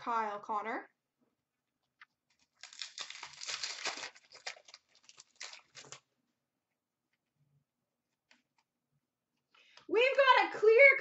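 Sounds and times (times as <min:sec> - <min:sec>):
card pack wrapper tearing: 0:02.3 - 0:06.1.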